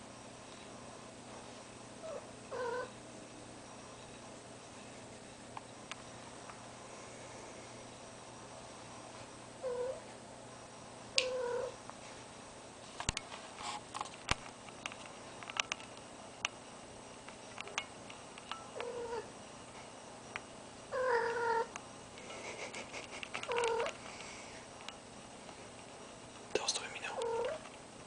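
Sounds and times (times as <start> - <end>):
light clicks and rustles: 12.9 - 16.1.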